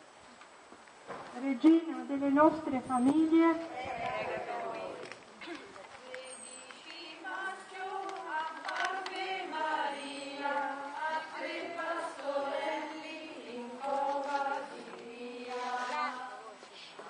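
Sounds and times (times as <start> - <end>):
group singing a hymn: 3.7 - 5.2, 6.0 - 17.0.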